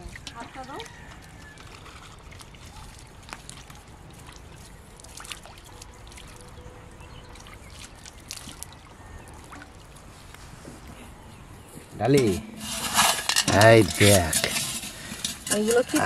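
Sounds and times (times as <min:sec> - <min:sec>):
water trickling and dripping: 0:00.0 - 0:10.6.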